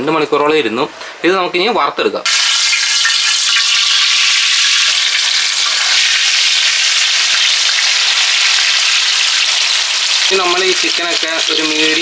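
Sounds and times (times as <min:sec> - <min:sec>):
chicken sizzling in oil: 0:02.3 - 0:12.0.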